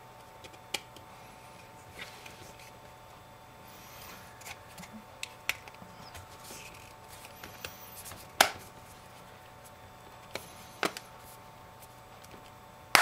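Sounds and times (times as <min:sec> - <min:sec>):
sharp plastic snap: 0:08.4 - 0:08.6.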